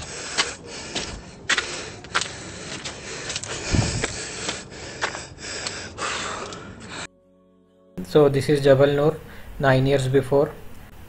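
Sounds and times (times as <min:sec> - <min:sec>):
footsteps on rocky steps: 0:00.0 - 0:06.7
steady outdoor hiss: 0:08.0 - 0:11.0.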